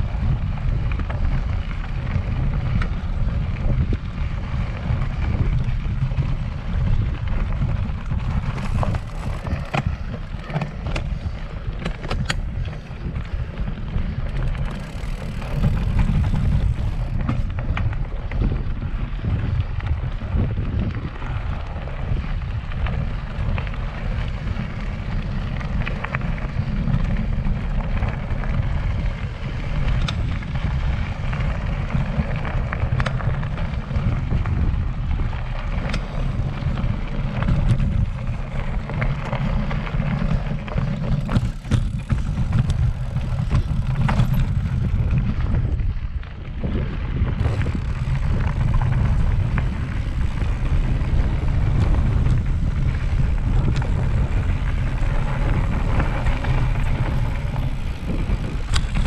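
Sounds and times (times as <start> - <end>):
bike clicks and rattles: 0.0 - 59.0
wind on microphone: 0.0 - 59.0.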